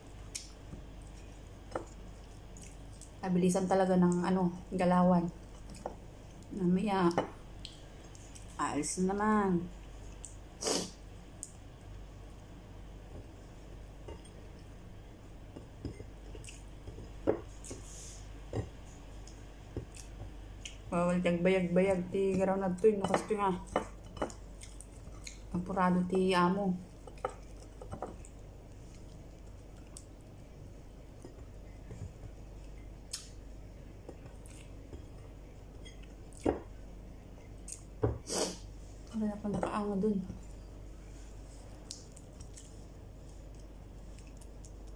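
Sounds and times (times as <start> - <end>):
faint low hum: 0.0 - 44.9
quiet chewing: 0.1 - 3.2, 7.6 - 8.6, 15.5 - 20.9, 24.0 - 25.6, 26.9 - 33.4, 34.0 - 36.5, 37.4 - 38.0, 40.3 - 44.9.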